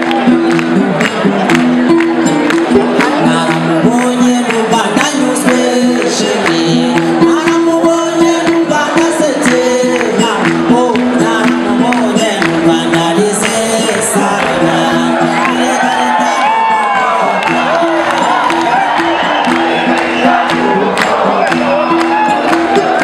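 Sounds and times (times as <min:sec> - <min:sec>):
plucked long-necked string instrument: 0:00.0 - 0:13.2
man singing: 0:01.9 - 0:23.0.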